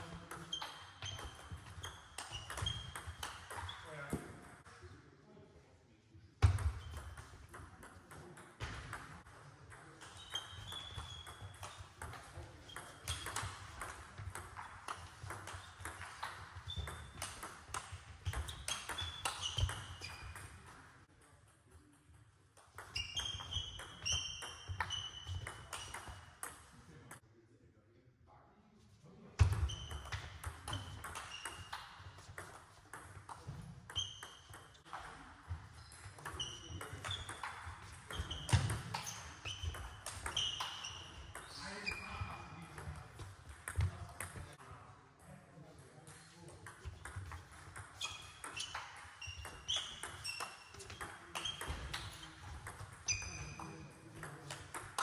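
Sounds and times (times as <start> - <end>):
short high squeaks: 38.1 - 42.1, 48.0 - 52.3, 53.0 - 53.7.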